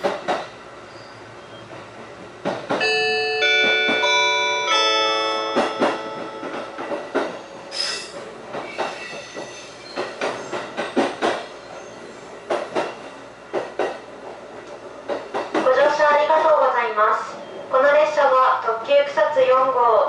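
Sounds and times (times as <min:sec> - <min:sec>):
train wheels clattering over rail joints: 0:00.0 - 0:00.6, 0:01.6 - 0:04.4, 0:05.4 - 0:16.6
onboard chime melody: 0:02.8 - 0:06.9.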